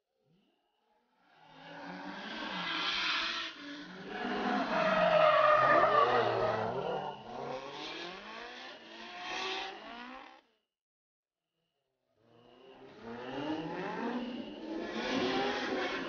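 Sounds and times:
car engines revving hard: 1.7s - 10.3s, 12.8s - 16.0s.

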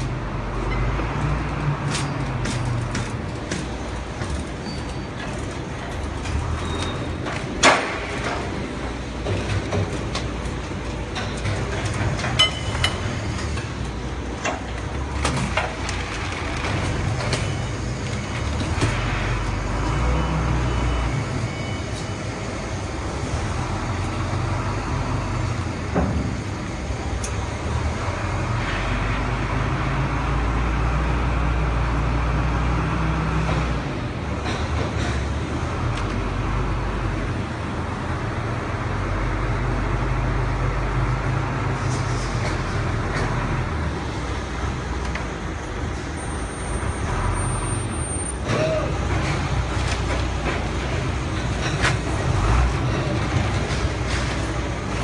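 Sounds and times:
heavy machinery rumbling: 0.0s - 55.0s
sharp knocks and clanks: 6.2s - 13.7s, 34.4s - 35.5s.

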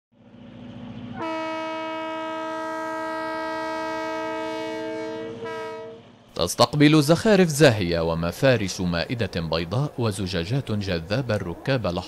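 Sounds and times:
train rumbling: 0.2s - 12.0s
locomotive horn blast: 1.0s - 6.3s.

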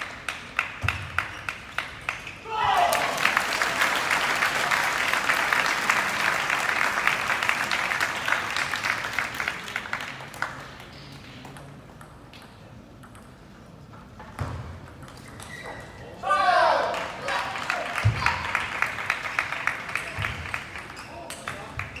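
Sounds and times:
low hall murmur: 0.0s - 22.0s
audience applause: 2.6s - 10.6s, 16.9s - 21.0s.

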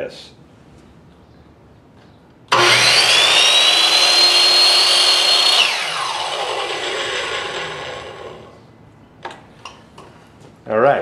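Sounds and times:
miter saw motor whine: 2.5s - 8.5s
saw cutting wood: 2.5s - 8.5s.

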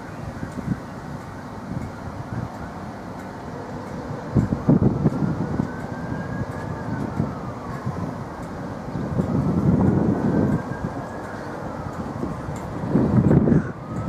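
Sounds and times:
train wheels rumbling on rails: 0.0s - 14.0s
siren wailing: 4.0s - 14.0s.

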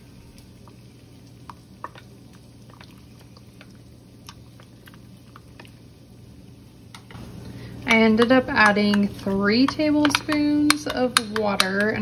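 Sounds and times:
steady low hum: 0.0s - 12.0s
spoon stirring thick sauce: 0.6s - 5.9s, 7.9s - 12.0s.

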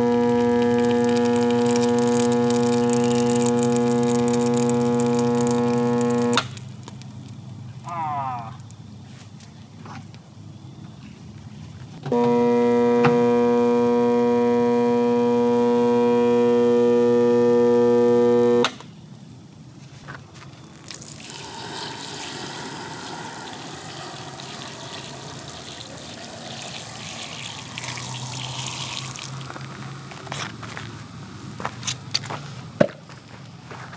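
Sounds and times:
vacuum motor humming: 0.0s - 6.4s, 12.1s - 18.6s, 21.1s - 30.0s
water pouring and splashing: 0.0s - 7.4s, 20.7s - 30.6s.

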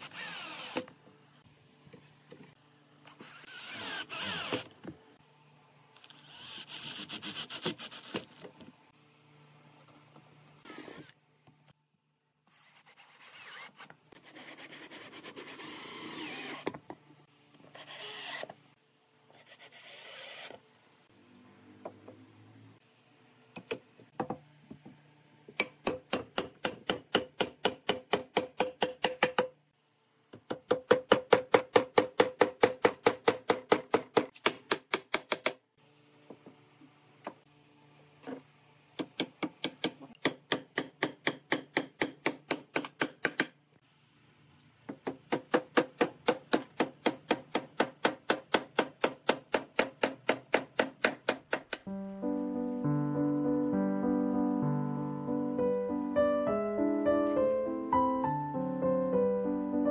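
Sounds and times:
cordless drill driving screws: 0.0s - 0.9s, 3.1s - 4.7s.

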